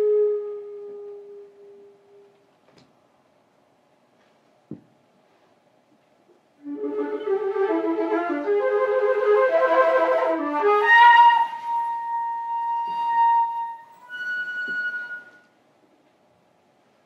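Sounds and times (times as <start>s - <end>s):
solo flute playing: 0.0s - 2.3s, 6.6s - 15.6s.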